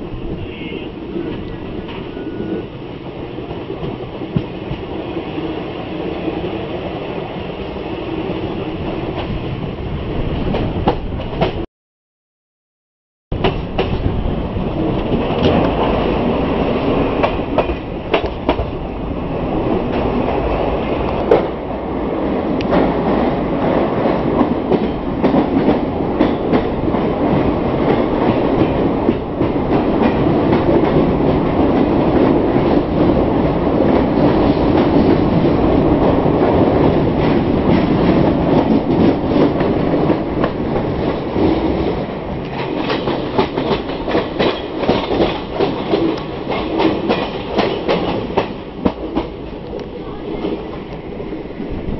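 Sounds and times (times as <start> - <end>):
train wheels rumbling in tunnel: 0.0 - 11.6, 13.4 - 51.9
clickety-clack of train wheels: 0.2 - 6.9, 8.3 - 11.6, 13.4 - 51.9.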